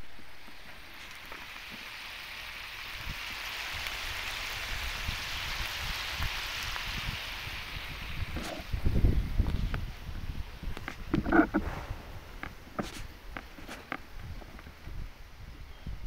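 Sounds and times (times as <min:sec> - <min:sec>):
meat sizzling in oil: 0:00.0 - 0:11.6
low bumps and rumbles: 0:07.9 - 0:15.2.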